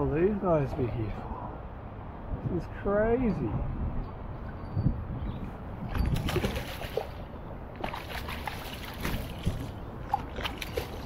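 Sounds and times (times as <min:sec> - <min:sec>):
fish splashing in water: 0:06.1 - 0:11.0.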